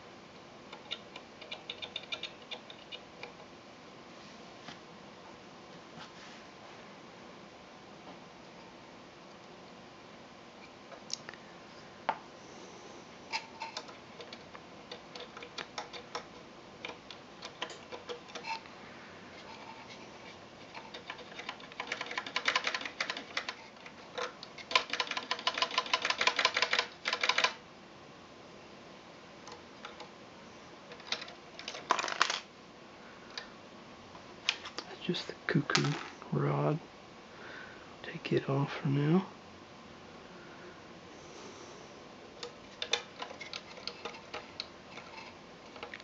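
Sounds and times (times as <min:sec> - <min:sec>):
rapid even clicking: 0:00.7 - 0:03.5, 0:13.7 - 0:18.6, 0:20.6 - 0:27.6
small metal clicks and rattles: 0:00.7 - 0:03.5, 0:13.3 - 0:18.7, 0:20.6 - 0:27.6, 0:30.9 - 0:32.5, 0:42.4 - 0:46.0.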